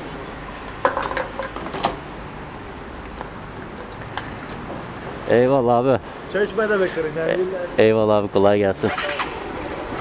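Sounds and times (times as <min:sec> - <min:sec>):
steady background noise: 0:00.0 - 0:10.0
keys jingling: 0:04.1 - 0:04.8.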